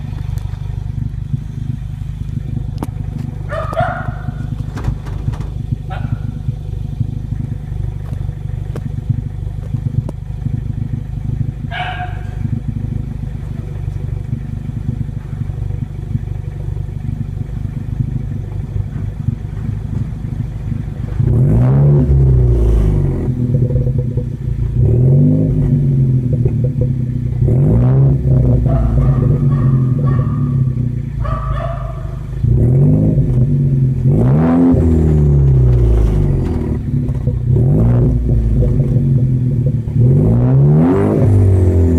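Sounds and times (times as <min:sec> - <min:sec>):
car engine idling and revving: 0:00.0 - 0:41.9.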